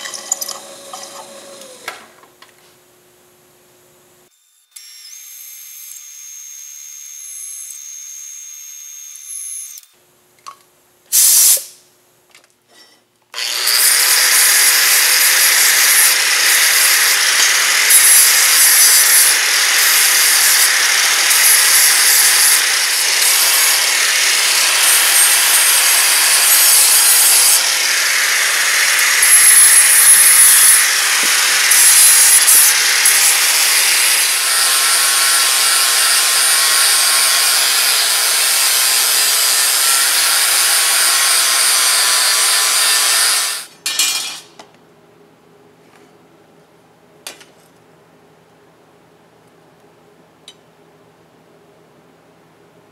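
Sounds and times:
angle grinder grinding steel: 0.0s - 2.0s, 13.4s - 44.5s
drill spindle whining: 0.0s - 2.0s, 13.4s - 43.7s.

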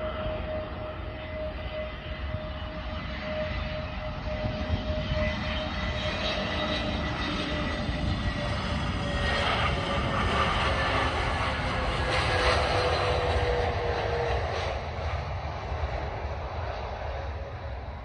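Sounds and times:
jet engines whining: 0.0s - 18.0s.

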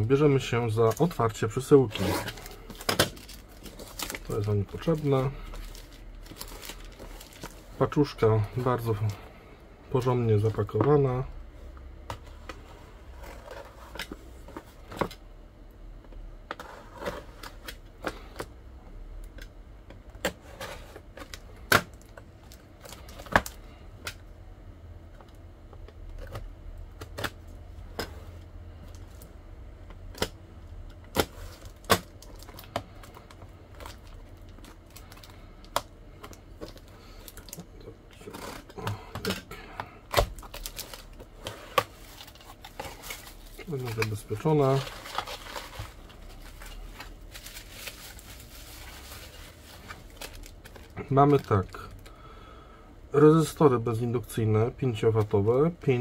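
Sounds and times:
plastic crinkling: 0.3s - 9.2s, 31.1s - 52.2s.

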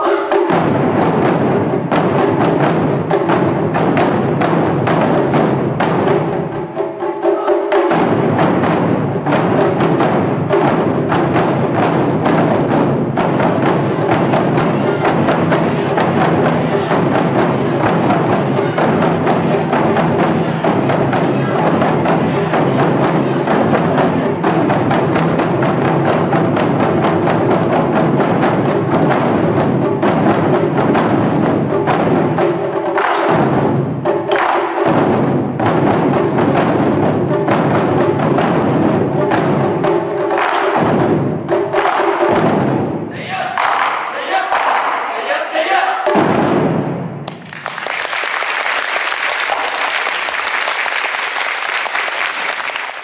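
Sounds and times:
deep drums beating: 0.0s - 45.1s, 46.0s - 47.8s
higher drums beating: 0.0s - 53.0s.

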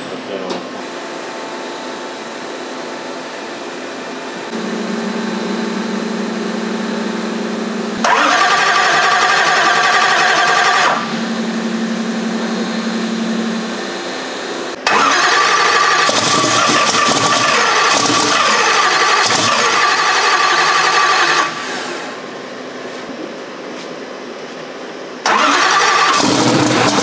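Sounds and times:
starter motor cranking whine: 7.9s - 11.6s, 14.7s - 22.2s, 25.2s - 27.0s.

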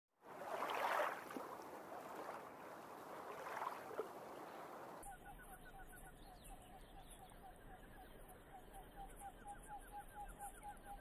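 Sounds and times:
water lapping at stony shore: 0.3s - 5.0s.

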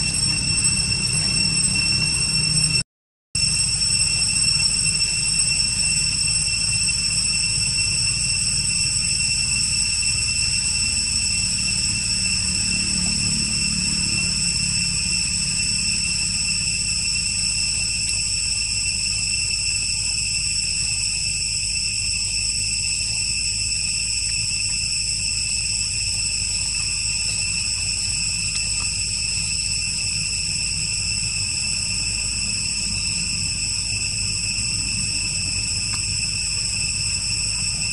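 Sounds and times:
insects droning: 0.0s - 2.8s, 3.4s - 37.9s
low rumble: 7.2s - 19.2s.

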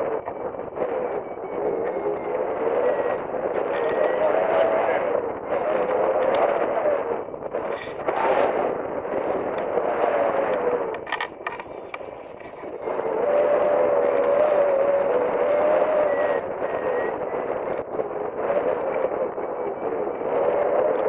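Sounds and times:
wind rushing over microphone: 0.0s - 21.0s
clicks: 5.8s - 6.8s, 9.4s - 12.8s
wavering whistle: 12.8s - 17.8s.

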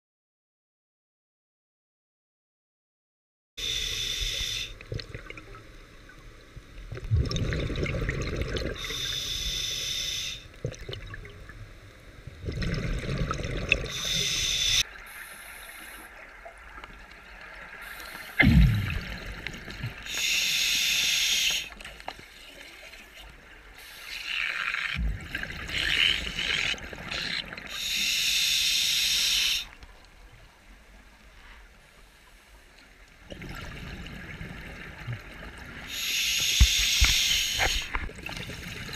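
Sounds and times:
regulator hissing inhalation: 3.6s - 4.8s, 8.8s - 10.5s, 13.9s - 16.1s, 17.8s - 19.0s, 20.0s - 21.8s, 27.7s - 29.8s, 35.9s - 38.0s
exhaled bubbles rumbling: 6.7s - 8.8s, 12.3s - 14.0s, 18.4s - 20.1s, 25.0s - 27.7s, 33.3s - 35.9s.

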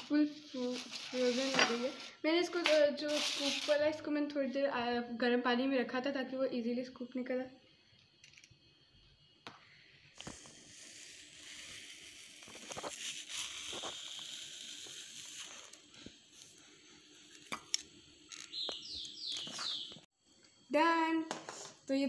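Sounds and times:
ice cream scoop scraping: 10.2s - 15.9s.

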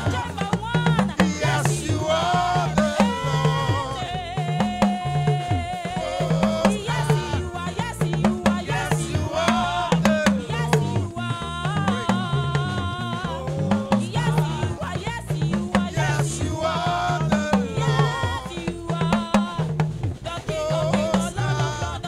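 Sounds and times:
woman singing into microphone: 0.0s - 19.7s
bass: 0.0s - 22.0s
drum kit: 0.0s - 22.0s.

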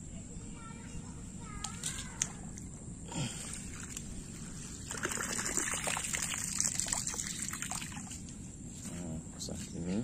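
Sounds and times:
small water splashes: 3.4s - 8.2s
floodwater trickling and splashing: 3.4s - 8.4s.

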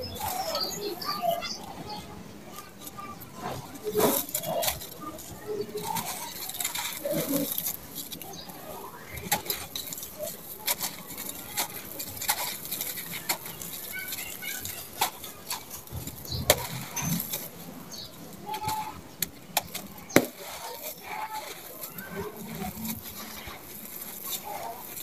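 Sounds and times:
cement block crunching and snapping: 4.0s - 25.0s
grit falling onto sand: 19.2s - 25.0s.

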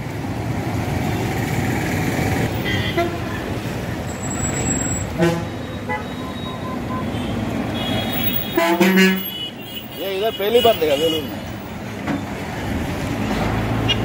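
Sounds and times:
traffic rumble: 0.0s - 14.0s
car horn toots: 5.2s - 11.3s.

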